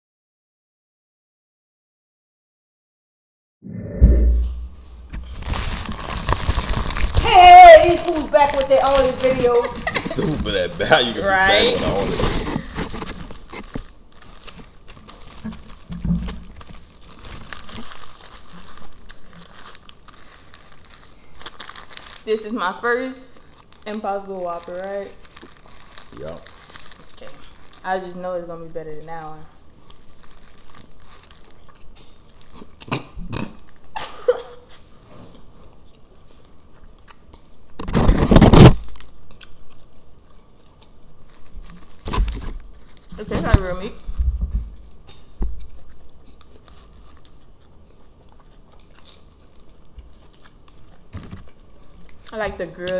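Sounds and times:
low bump: 3.7 - 5.6
paper wrappers crinkling: 5.0 - 32.9, 37.7 - 39.6, 40.9 - 52.9
chewing and biting burger: 45.4 - 52.3.

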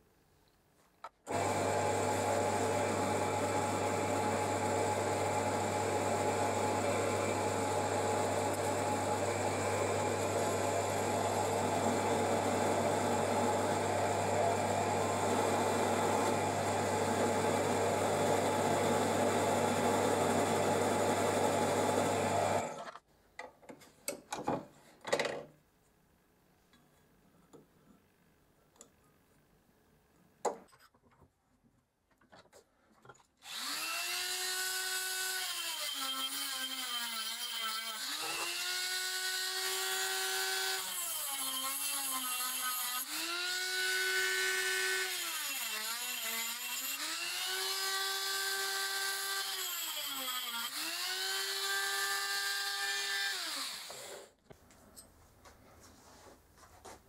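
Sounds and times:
drill press motor running: 1.3 - 22.8.

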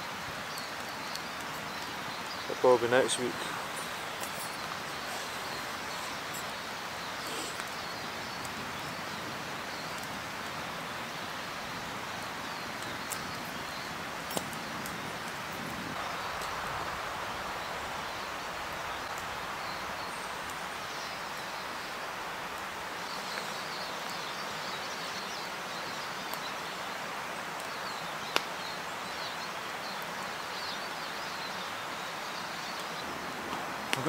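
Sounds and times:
steady rushing hiss: 0.0 - 34.0
faint bird chirps: 0.4 - 10.1.

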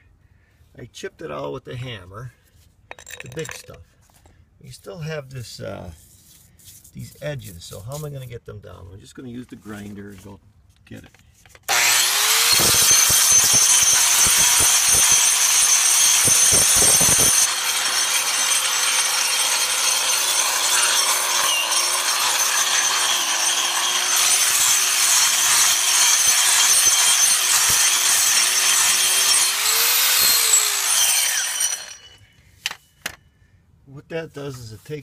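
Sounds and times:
angle grinder grinding concrete: 11.7 - 32.2.

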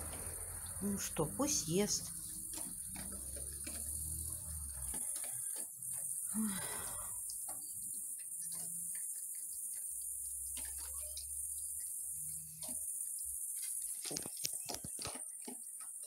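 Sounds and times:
crickets chirring: 0.0 - 16.0
dog chewing and crunching: 2.0 - 6.2.

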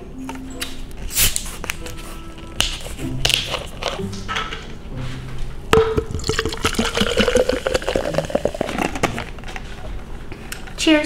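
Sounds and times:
fizzy drink pouring: 6.1 - 9.3.

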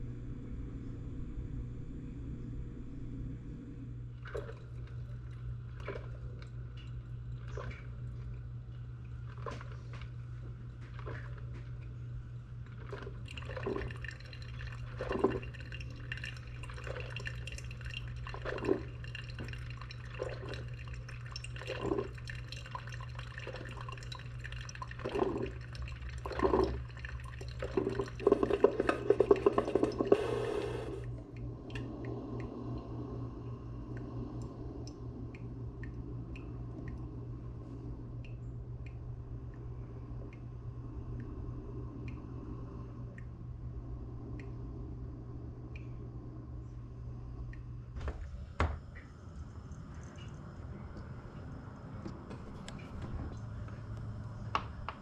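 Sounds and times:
steady low hum: 0.0 - 55.0
water dripping: 4.2 - 30.2, 31.0 - 41.4, 42.0 - 43.4, 44.2 - 44.8, 45.6 - 55.0.

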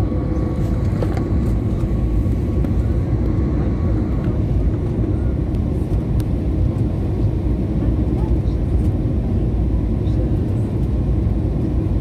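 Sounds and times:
jet airliner cabin noise: 0.0 - 12.0.

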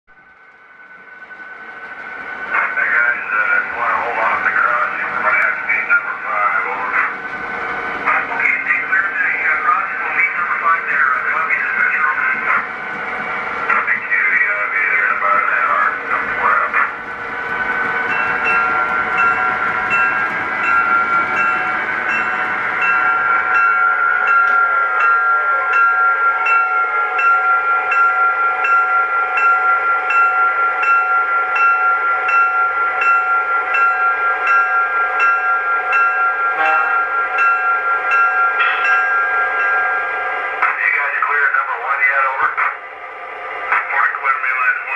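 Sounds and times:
locomotive bell ringing: 0.6 - 42.6
pitched engine and horn tone: 36.6 - 37.0.

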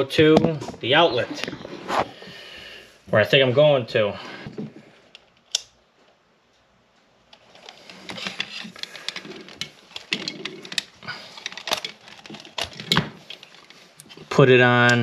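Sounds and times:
small clicks and rattles: 7.3 - 15.0.

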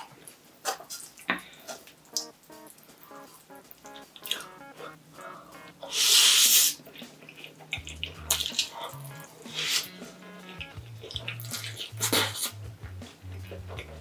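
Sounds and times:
quiet background music: 2.0 - 14.0
chewing and smacking mouth sounds: 6.9 - 9.3, 10.2 - 12.5.

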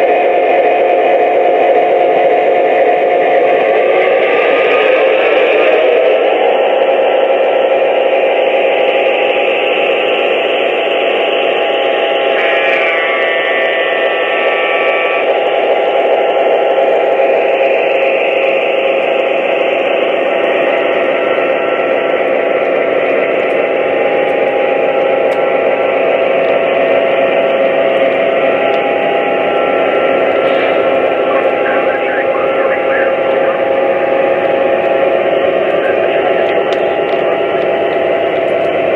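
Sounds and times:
model train engine drone: 0.0 - 38.9
train rolling on track: 0.0 - 38.9
locomotive horn: 12.4 - 13.5.

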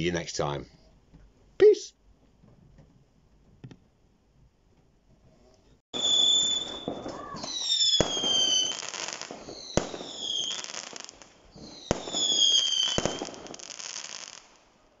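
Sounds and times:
firework whistles falling in pitch: 5.9 - 14.4
firework bangs: 5.9 - 14.6
firework crackling: 6.0 - 14.7.

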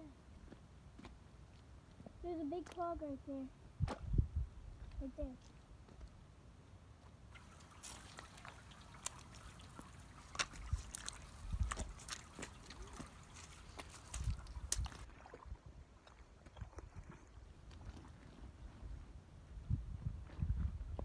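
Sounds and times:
footsteps in wet mud and stones: 0.3 - 3.0, 4.9 - 6.2, 7.0 - 15.4, 16.0 - 19.1.

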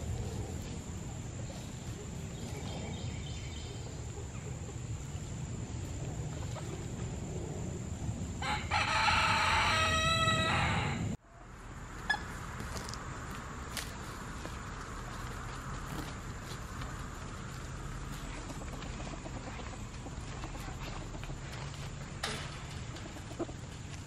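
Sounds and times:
rooster crowing: 8.4 - 11.2.

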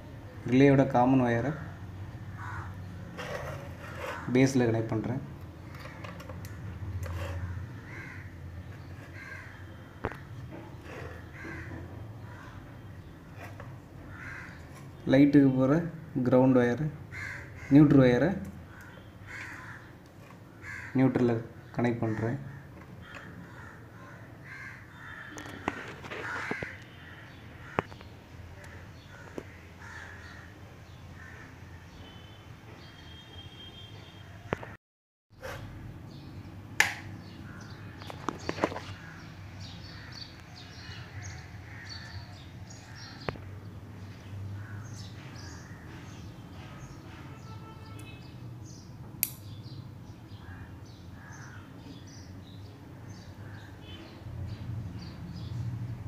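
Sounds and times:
birds calling: 2.3 - 16.2, 17.1 - 33.7, 35.5 - 55.6
sharp clicks: 49.2 - 49.5.

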